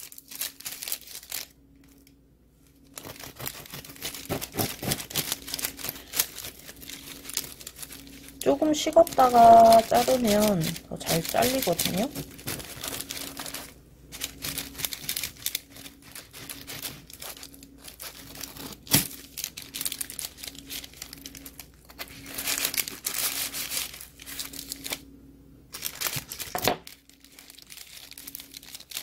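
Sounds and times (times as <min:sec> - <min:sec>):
baking paper crinkling: 0:00.0 - 0:25.0, 0:25.7 - 0:29.0
knife crunching toasted crust: 0:02.9 - 0:08.3, 0:14.3 - 0:19.2.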